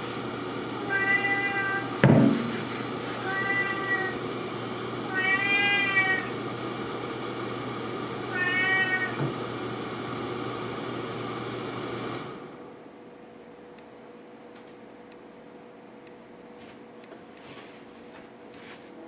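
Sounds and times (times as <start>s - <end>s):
cat meowing: 0.9s - 2.0s, 3.1s - 6.3s, 8.3s - 9.2s.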